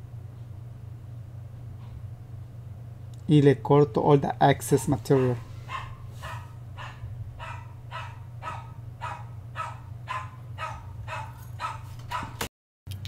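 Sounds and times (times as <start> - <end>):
low hum: 0.0 - 12.2
dog barking: 5.1 - 12.5.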